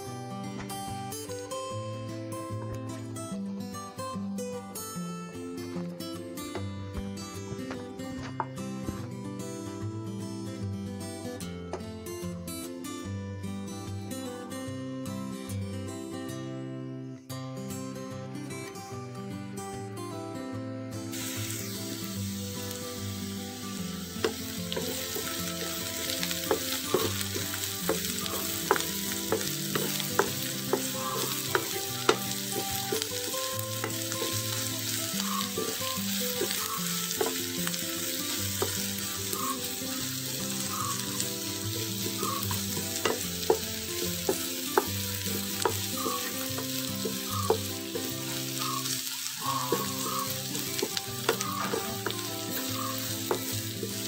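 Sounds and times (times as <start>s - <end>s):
onions sizzling in oil: 21.1s - 54.0s.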